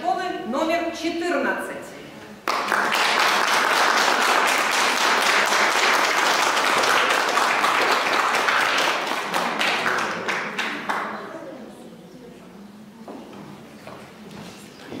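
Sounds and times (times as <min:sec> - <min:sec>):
audience applauding: 0:02.4 - 0:11.2.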